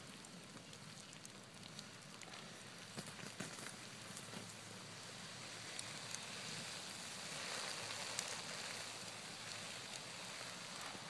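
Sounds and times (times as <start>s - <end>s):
campfire crackling: 0.0s - 11.0s
sharp fire pops: 0.1s - 4.7s.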